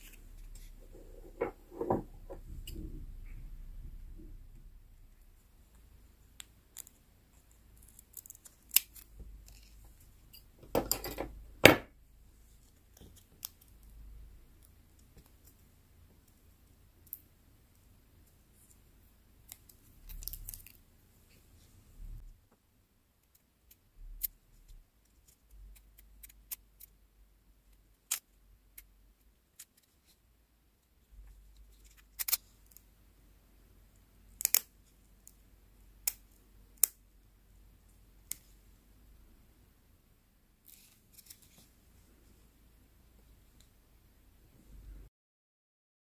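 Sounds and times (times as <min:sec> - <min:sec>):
scissors snipping paper: 0:31.8 - 0:32.8, 0:34.4 - 0:34.7.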